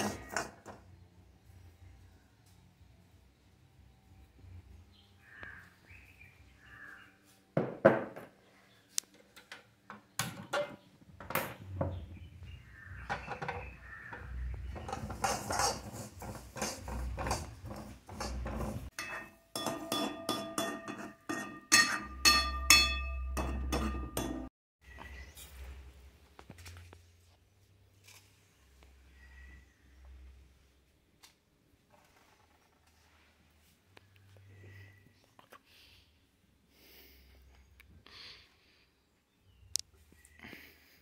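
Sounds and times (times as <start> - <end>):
spoon stirring and scraping in pan: 0.0 - 0.8, 13.0 - 24.5
spoon clinks and knocks on metal: 18.2 - 24.5.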